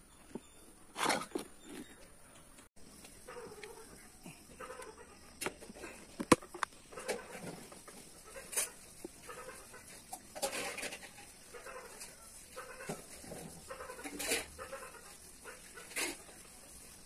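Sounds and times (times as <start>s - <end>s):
chicken clucking: 6.4s - 16.3s.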